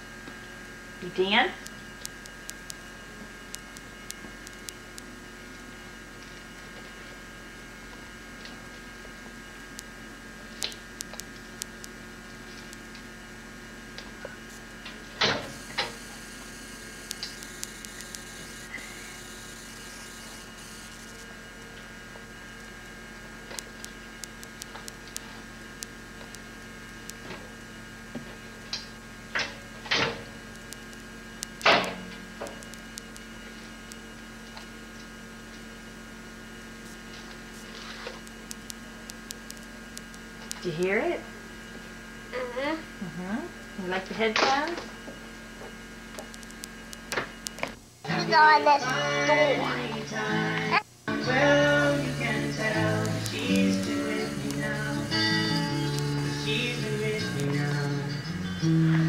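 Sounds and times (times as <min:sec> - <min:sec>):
electrical hum: 0:00.0 - 0:59.0
faint ticks: 0:17.0 - 0:18.3, 0:46.2 - 0:47.7.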